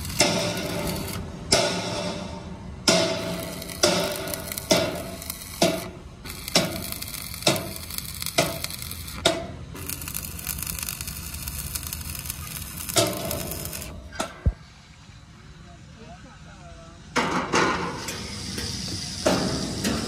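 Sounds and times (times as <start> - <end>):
hammer striking steel plate: 0.0 - 9.6, 12.9 - 14.5
steady hiss: 0.0 - 20.0.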